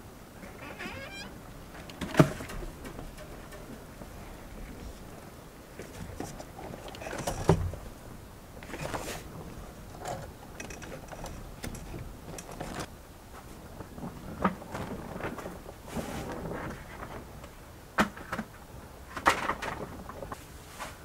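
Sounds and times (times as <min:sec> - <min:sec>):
metal frame knocking and scraping: 0:01.9 - 0:04.2.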